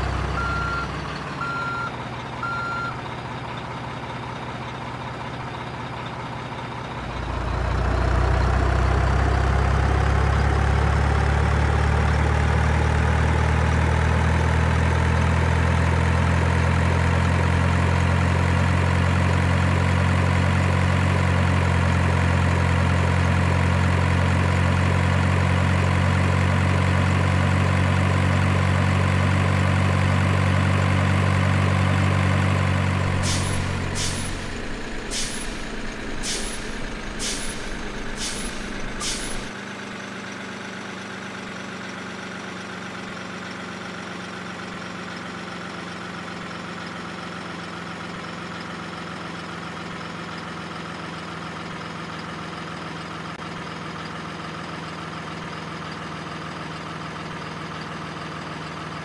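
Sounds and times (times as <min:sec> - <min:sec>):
diesel truck engine running: 0:00.0 - 0:59.0
air brake hisses: 0:33.1 - 0:39.5.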